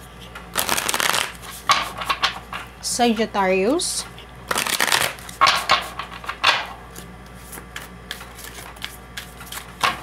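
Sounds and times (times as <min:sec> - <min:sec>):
cards tapping together: 0:00.6 - 0:01.4
cards being shuffled: 0:00.6 - 0:01.7, 0:04.5 - 0:05.6, 0:06.9 - 0:10.0.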